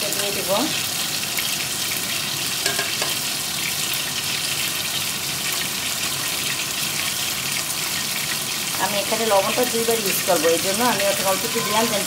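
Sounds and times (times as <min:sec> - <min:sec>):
prawns and onion sizzling in oil: 0:00.0 - 0:12.0.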